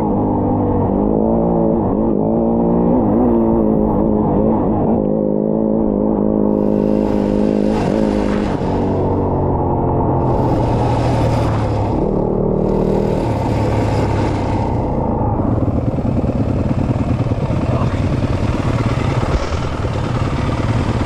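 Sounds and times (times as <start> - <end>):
motorcycle engine running: 6.3 - 21.0
rush of high noise: 6.5 - 21.0.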